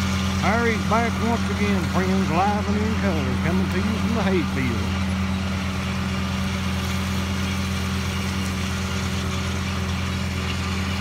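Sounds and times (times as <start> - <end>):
disc mower cutting hay: 0.0 - 11.0
tractor engine drone: 0.0 - 11.0.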